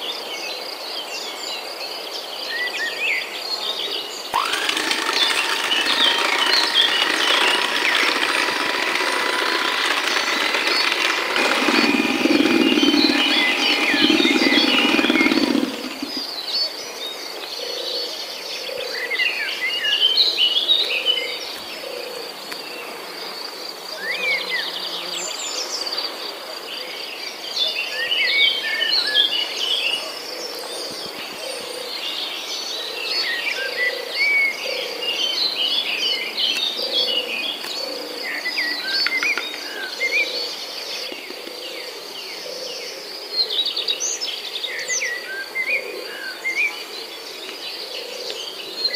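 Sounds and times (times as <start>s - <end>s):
birds chirping: 4.2s - 16.4s
electric hand mixer beating batter: 4.3s - 16.2s.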